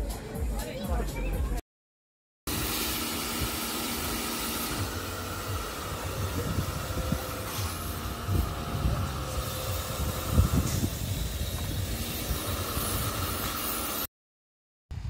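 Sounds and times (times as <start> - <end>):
pressure washer motor hum: 2.5 - 14.1
water spraying hiss: 2.5 - 14.1.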